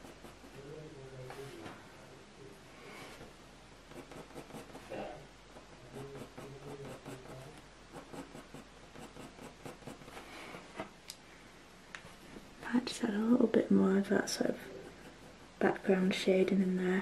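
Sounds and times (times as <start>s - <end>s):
pencil scratching on paper: 0.0s - 0.6s, 3.9s - 5.0s, 5.7s - 10.2s, 14.4s - 16.0s.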